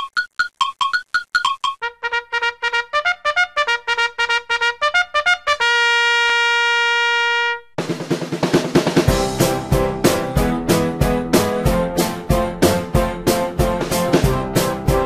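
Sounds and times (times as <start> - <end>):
intro music with staccato notes: 7.8 - 15.0.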